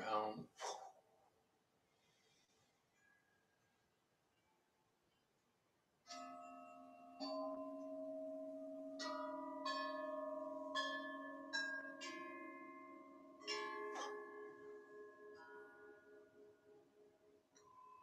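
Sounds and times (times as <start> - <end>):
metal bells struck: 6.1 - 15.9.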